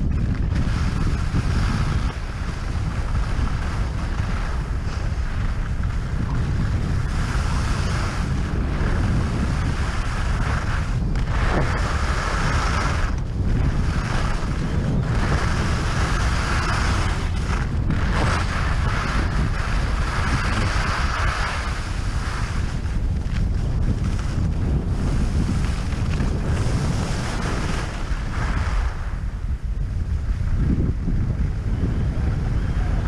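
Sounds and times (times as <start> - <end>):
skis carving over snow: 0.0 - 33.0
wind buffeting microphone: 0.0 - 33.0.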